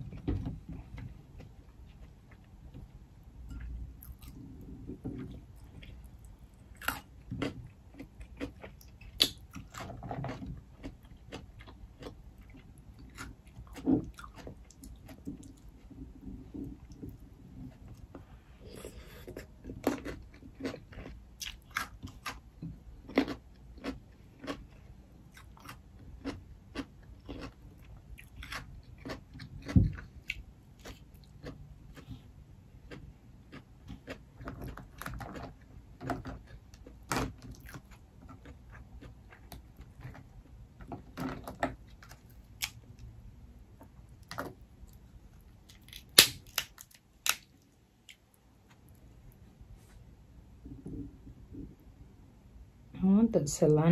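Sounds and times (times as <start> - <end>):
chewing and wet mouth sounds: 0.8 - 40.6, 44.1 - 49.5
crab shell cracking: 45.7 - 47.6.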